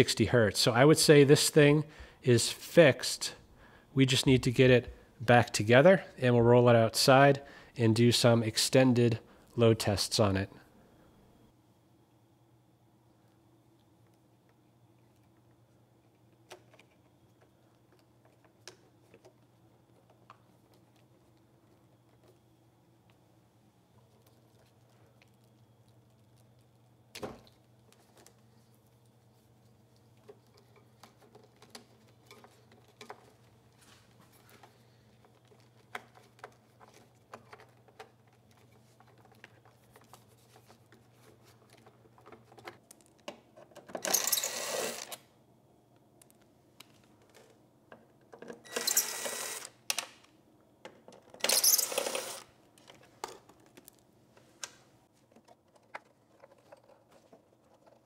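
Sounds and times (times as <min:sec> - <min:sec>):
clicks and rustles of wiring: 0:23.9 - 0:44.2, 0:52.7 - 0:58.0.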